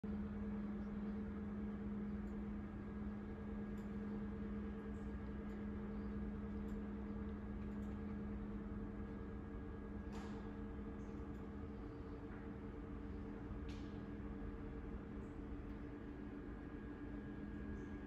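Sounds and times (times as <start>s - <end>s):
ventilation system hum: 0.0s - 18.0s.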